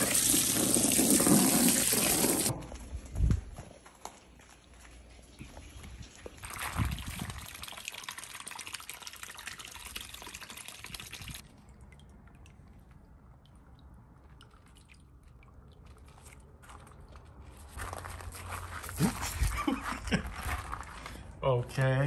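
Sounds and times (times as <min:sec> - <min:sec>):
water taps and drips: 0:05.4 - 0:17.3.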